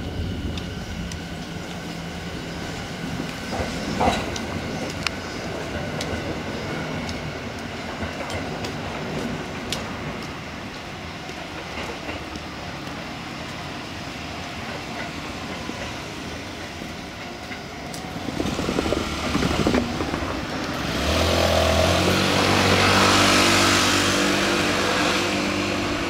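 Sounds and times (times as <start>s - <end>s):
electric train rolling on track: 0.0s - 26.0s
vehicle engine running nearby: 18.6s - 26.0s.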